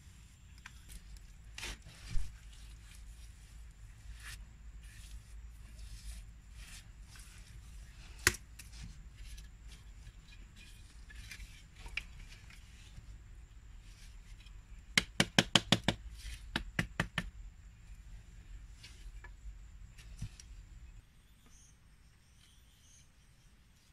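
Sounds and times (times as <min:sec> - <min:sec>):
bamboo striking bamboo: 0:08.0 - 0:09.5, 0:14.9 - 0:17.4.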